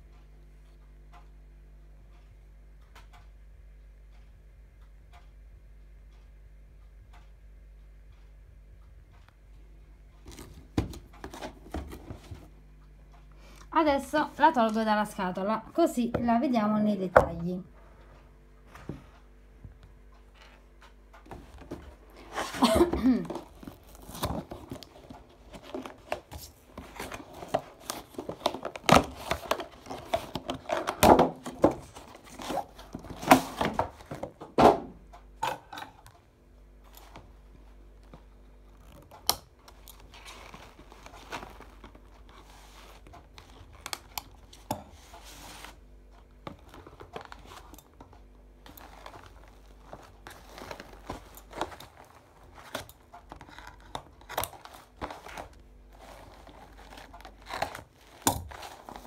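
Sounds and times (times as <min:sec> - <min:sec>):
cardboard and plastic crinkling: 0:21.2 - 0:34.6, 0:38.0 - 0:59.0.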